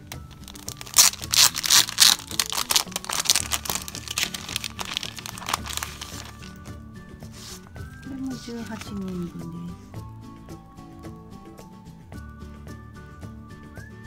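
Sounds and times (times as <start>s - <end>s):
background music: 0.0s - 14.0s
plastic packaging crinkling: 0.3s - 6.6s.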